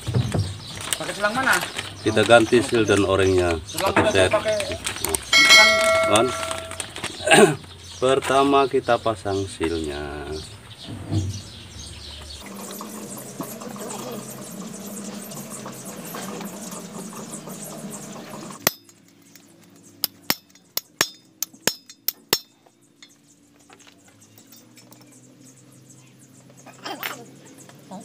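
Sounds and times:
steady background noise: 0:00.0 - 0:28.0
metal tool clinking on steel: 0:05.3 - 0:07.0, 0:20.0 - 0:23.2.

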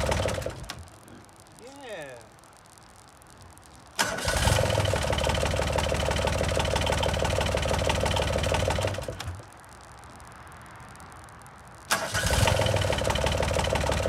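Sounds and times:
diesel engine starting and running: 0:00.0 - 0:00.8, 0:04.0 - 0:09.4, 0:11.9 - 0:14.0
engine sputtering: 0:00.0 - 0:00.8, 0:04.0 - 0:09.4, 0:11.9 - 0:14.0.

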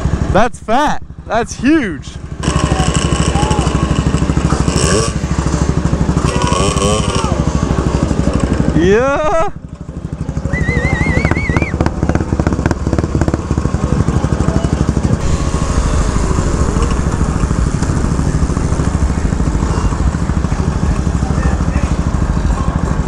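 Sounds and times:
warbling high tone: 0:15.2 - 0:21.2.

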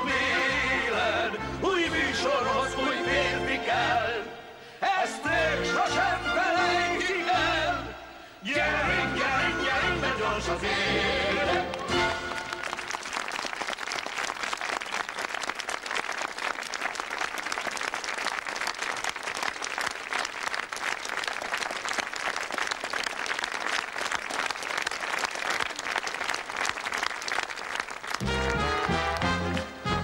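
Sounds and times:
band playing: 0:08.8 - 0:12.7, 0:28.2 - 0:30.0
audience applauding: 0:11.7 - 0:30.0.

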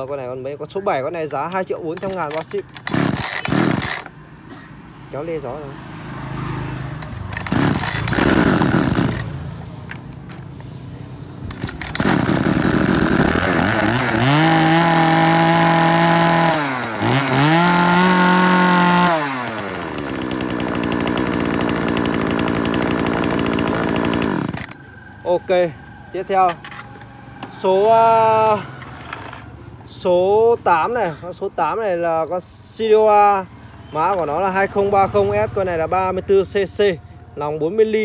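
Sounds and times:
chainsaw pull-starting: 0:01.1 - 0:04.2, 0:06.9 - 0:10.6, 0:11.4 - 0:24.9, 0:26.3 - 0:29.5, 0:34.0 - 0:35.0
chainsaw engine revving: 0:01.3 - 0:04.2, 0:05.3 - 0:09.6, 0:11.4 - 0:29.4.

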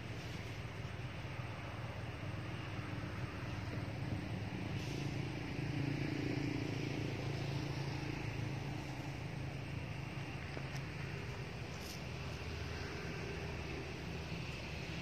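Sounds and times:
low engine hum: 0:00.0 - 0:15.0.

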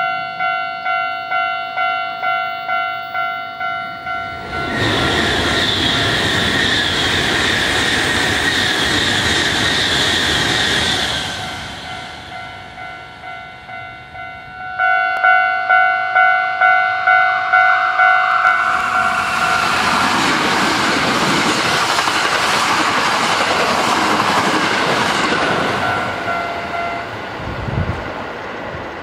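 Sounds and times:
level crossing warning bell: 0:00.0 - 0:05.1, 0:11.4 - 0:20.1, 0:25.2 - 0:27.2
electric train passing: 0:00.0 - 0:29.0.

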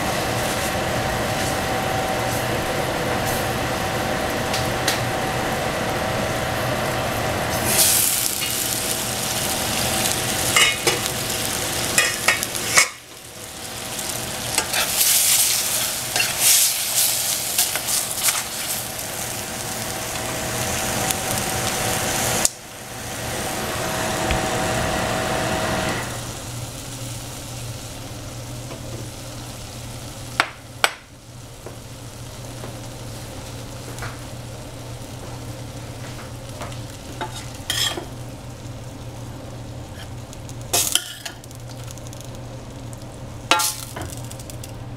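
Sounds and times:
food sizzling in a pan: 0:00.0 - 0:44.9.

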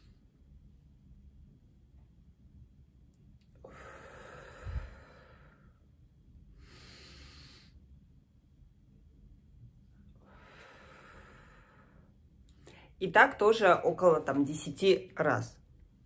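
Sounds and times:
woman breathing deeply: 0:03.5 - 0:08.0, 0:10.1 - 0:13.0.

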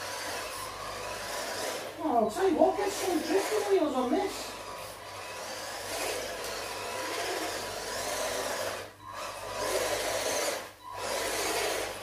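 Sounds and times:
toy car electric motor: 0:00.0 - 0:02.0, 0:02.7 - 0:12.0.

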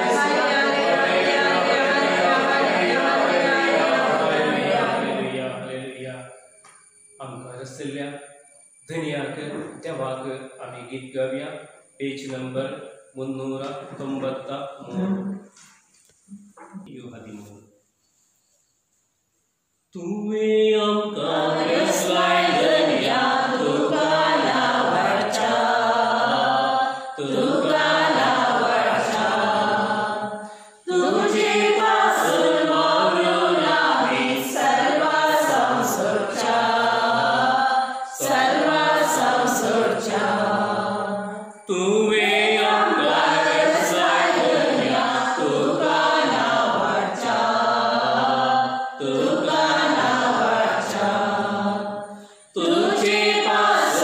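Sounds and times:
hymn being sung: 0:00.0 - 0:06.4, 0:20.0 - 0:54.0.

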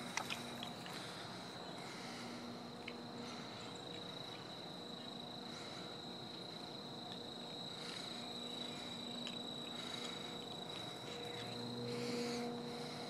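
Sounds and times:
crickets trilling: 0:00.0 - 0:13.0
faint low hum: 0:00.0 - 0:13.0.

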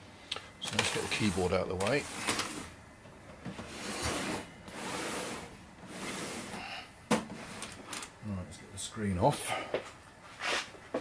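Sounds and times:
computer scraping on workbench: 0:00.6 - 0:02.8, 0:03.5 - 0:06.6, 0:07.3 - 0:08.0.

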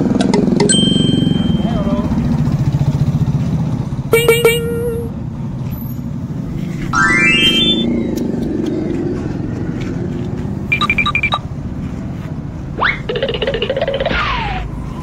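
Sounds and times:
low rumble of road traffic: 0:00.0 - 0:15.0
high electronic beeps: 0:06.9 - 0:08.1, 0:10.7 - 0:11.5
short rising squeal: 0:06.9 - 0:08.2.

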